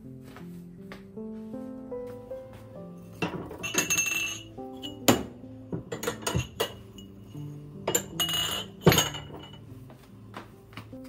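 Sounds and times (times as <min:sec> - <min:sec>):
background music: 0:00.0 - 0:11.0
household objects clinking: 0:03.1 - 0:09.7.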